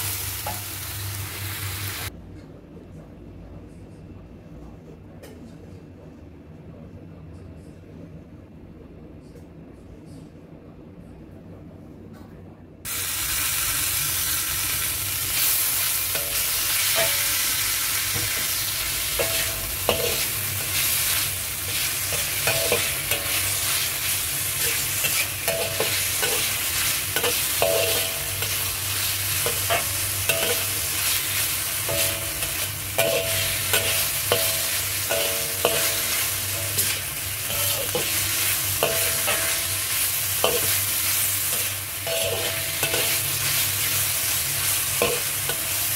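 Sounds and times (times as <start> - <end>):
meat sizzling in a wok: 0.0 - 2.1, 12.9 - 45.9
metal spatula scraping a wok: 15.4 - 45.9.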